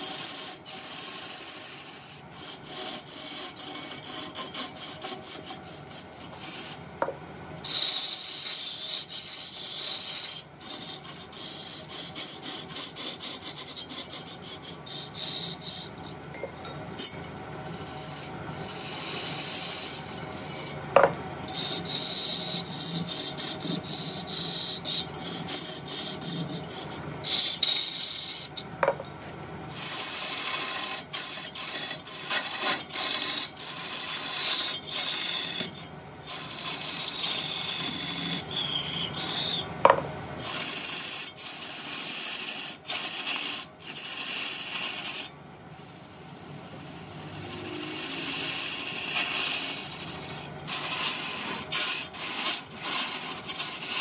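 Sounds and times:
rasping scrapes: 0.0s - 6.8s, 7.6s - 16.2s, 17.0s - 20.8s, 21.5s - 28.6s, 29.7s - 39.6s, 40.4s - 54.0s
lathe tool cutting wood: 21.5s - 28.6s, 29.7s - 54.0s.

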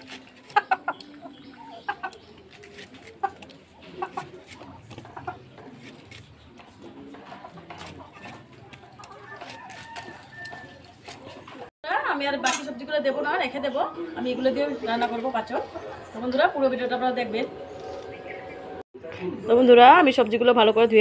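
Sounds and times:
hen clucking: 0.3s - 11.7s, 13.6s - 18.8s.

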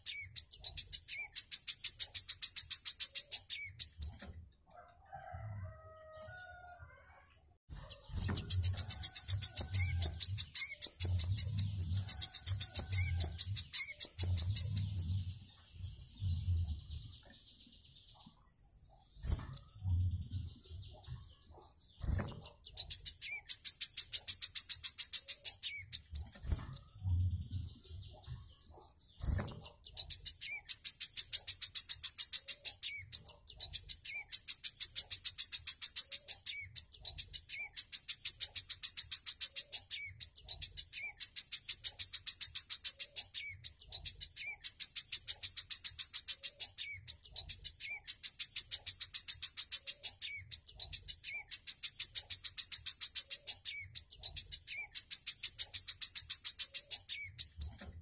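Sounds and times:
songbird singing fast trills: 7.9s - 15.4s, 29.2s - 57.6s.

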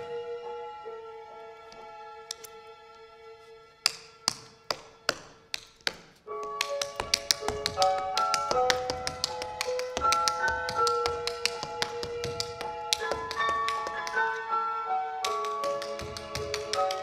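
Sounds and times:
music: 0.0s - 17.0s
tap shoes on stage floor: 3.8s - 14.4s, 15.2s - 17.0s.

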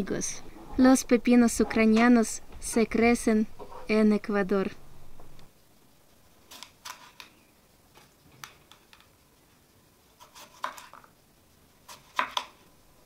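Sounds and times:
knife slicing cucumber on board: 10.2s - 11.1s, 11.8s - 12.6s.

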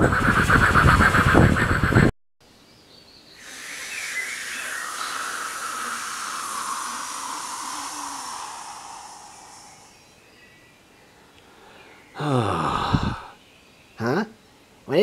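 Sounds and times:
steady rushing hiss: 3.2s - 13.4s.

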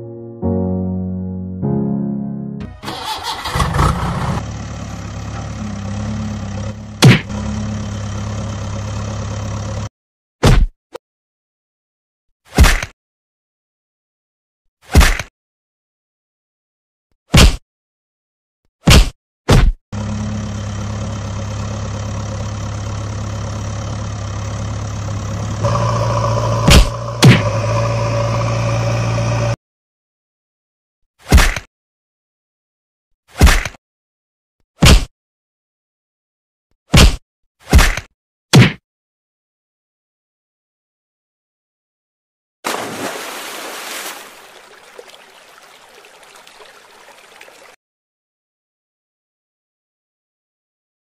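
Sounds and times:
engine idling low hum: 3.5s - 9.9s, 20.0s - 29.6s
water gurgling and splashing: 42.7s - 47.8s
water running over a weir: 42.7s - 47.8s.

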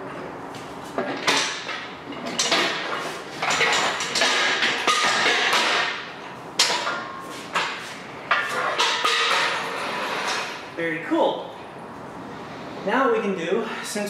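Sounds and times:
steel stand clanking: 1.0s - 6.0s, 6.6s - 10.6s.

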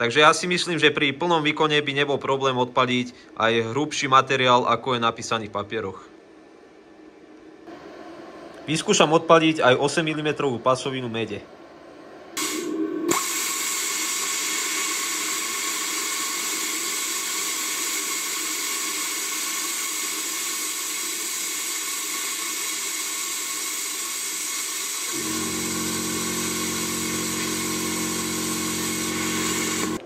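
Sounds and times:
low multi-tone hum: 0.1s - 13.1s
plasma arc hissing: 12.4s - 30.0s.

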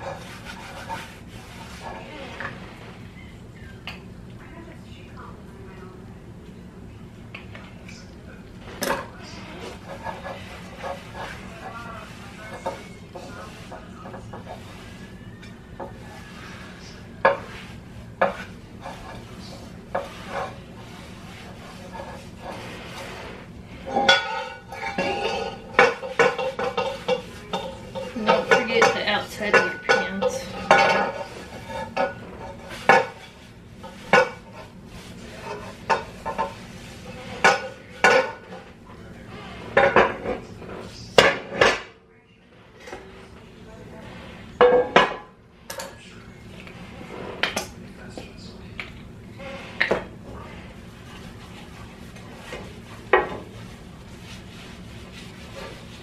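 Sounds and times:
cast iron rubbing and scraping: 0.0s - 3.2s, 8.5s - 41.9s, 42.5s - 45.4s, 46.5s - 56.0s
cast iron cookware clanking: 23.8s - 38.7s, 44.6s - 46.0s.

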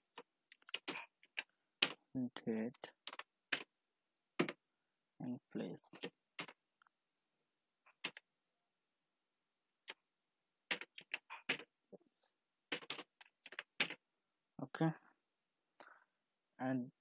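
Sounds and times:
keyboard typing: 0.1s - 2.0s, 2.7s - 3.7s, 4.4s - 4.6s, 6.0s - 6.6s, 7.9s - 8.3s, 10.7s - 11.7s, 12.7s - 14.0s.

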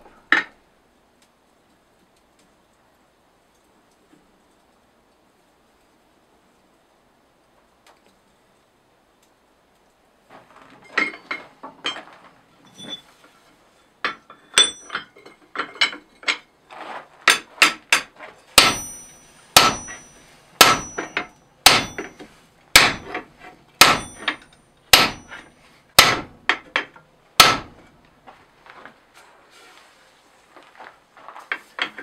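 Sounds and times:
light hammer taps and clinks: 14.0s - 16.4s, 17.3s - 22.4s, 24.0s - 25.5s
hammer blows on hot steel: 17.3s - 26.4s.

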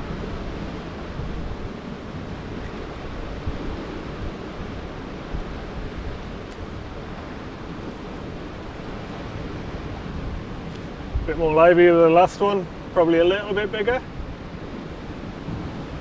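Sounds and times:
surf breaking on rocks: 0.0s - 16.0s
wind noise on microphone: 0.0s - 16.0s.

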